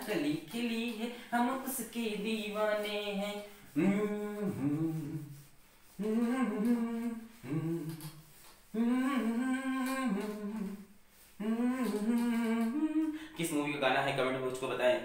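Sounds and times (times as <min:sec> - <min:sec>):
man humming a tune: 0:03.7 - 0:13.6.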